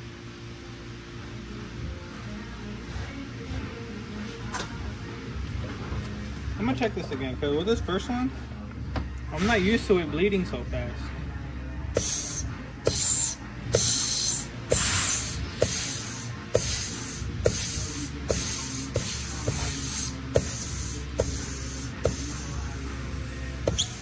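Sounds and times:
air blow gun hissing: 12.0s - 24.0s.

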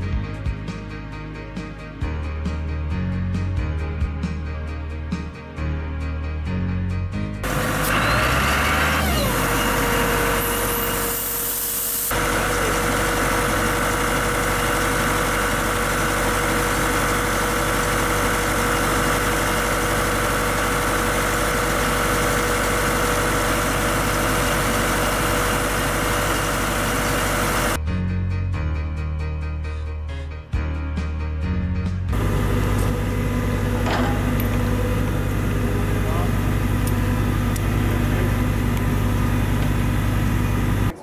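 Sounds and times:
air compressor engine running: 7.4s - 27.8s, 32.1s - 41.0s.

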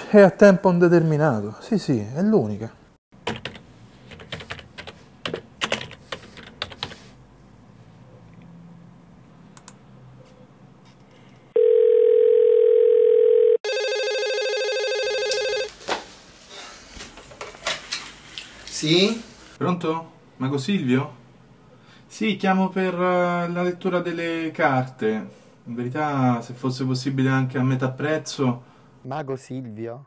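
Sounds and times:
computer keyboard typing: 3.2s - 7.0s
buzzing telephone ring: 11.6s - 15.7s
telephone dial tone: 11.6s - 15.7s.

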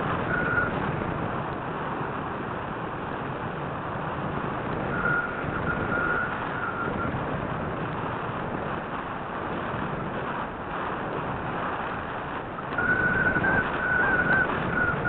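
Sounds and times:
airflow rushing over microphone: 0.0s - 15.0s
faint high whistle: 0.2s - 0.8s, 4.9s - 7.1s, 12.6s - 15.0s.

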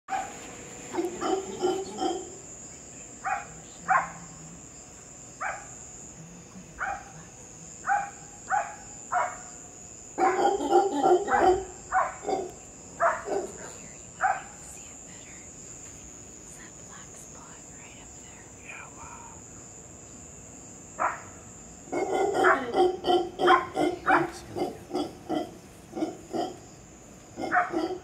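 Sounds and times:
high insect trill: 0.1s - 28.0s
sharp animal calls: 0.9s - 2.4s, 10.2s - 14.6s, 21.9s - 26.6s.

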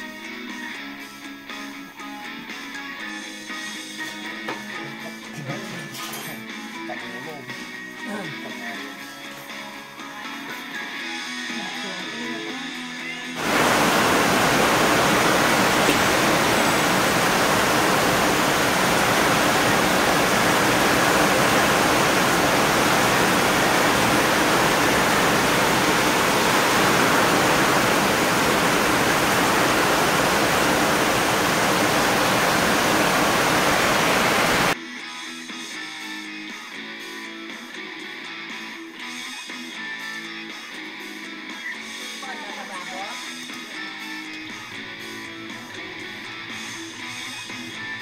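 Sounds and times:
loud rushing hiss: 13.4s - 34.8s.

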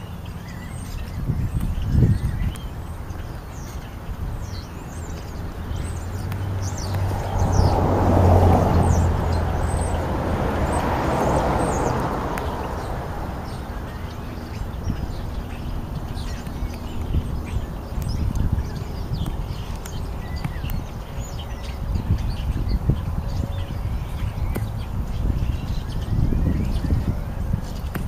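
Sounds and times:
small birds chirping: 0.0s - 28.0s
car passing: 2.8s - 28.0s.

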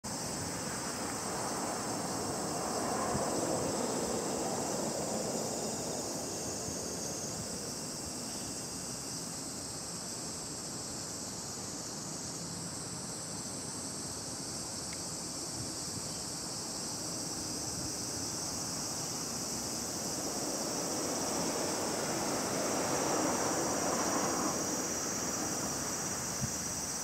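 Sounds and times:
broad rushing noise: 0.0s - 8.3s, 17.3s - 27.0s
high-pitched insect chorus: 0.0s - 27.0s.

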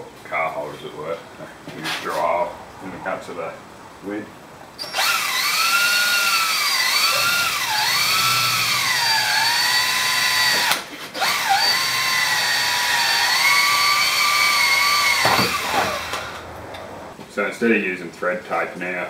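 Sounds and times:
cordless drill whining: 4.8s - 16.5s.

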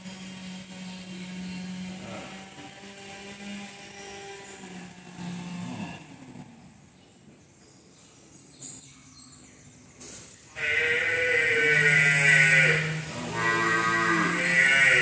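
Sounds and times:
water buffalo mooing: 5.2s - 6.2s, 10.6s - 15.0s.

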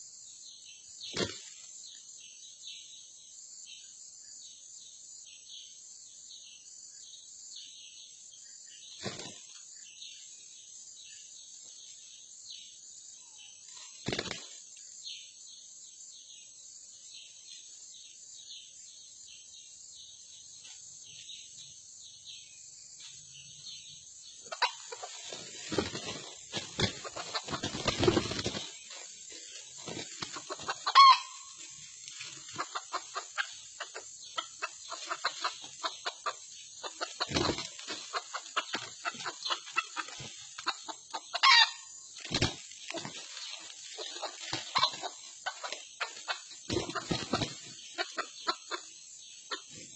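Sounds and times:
insect hiss: 0.0s - 49.9s
wing flapping: 24.8s - 31.0s, 36.8s - 40.7s, 42.2s - 47.8s
rustling and scuffling in leaves: 24.9s - 32.7s, 42.2s - 47.7s
rooster calls: 30.8s - 31.4s.

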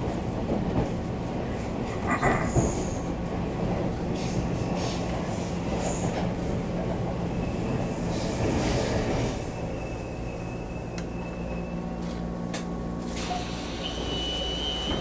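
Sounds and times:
passing train rushing: 0.0s - 15.0s
train running noise inside car: 0.0s - 15.0s
thin high brake squeal: 9.4s - 11.8s, 13.2s - 15.0s.

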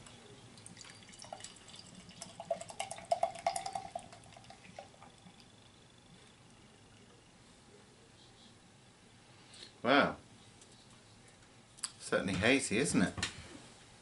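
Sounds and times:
beer gurgling from can: 0.8s - 5.0s.

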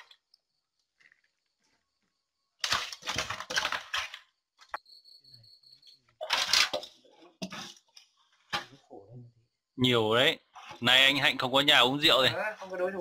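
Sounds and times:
cricket trilling: 4.8s - 6.2s.

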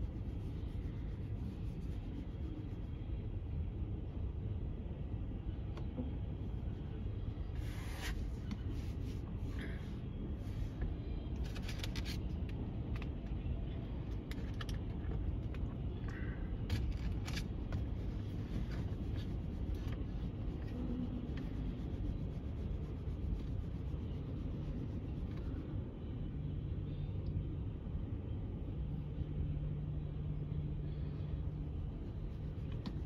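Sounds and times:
metallic clicks and scrapes: 11.4s - 13.2s, 16.7s - 20.0s.

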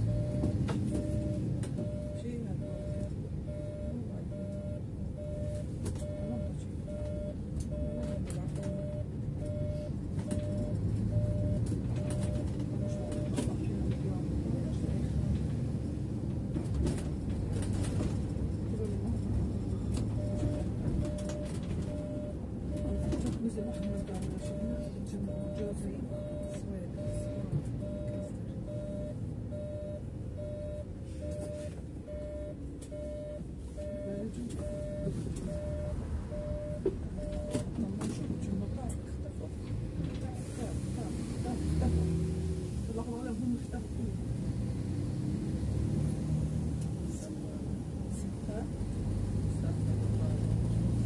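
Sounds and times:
bus engine running: 0.0s - 51.0s
turn-signal beeper: 20.2s - 37.7s.

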